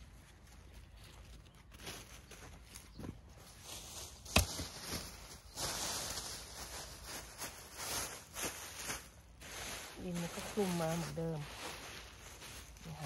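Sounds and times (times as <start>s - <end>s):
plastic sheet crinkling: 0.0s - 13.0s.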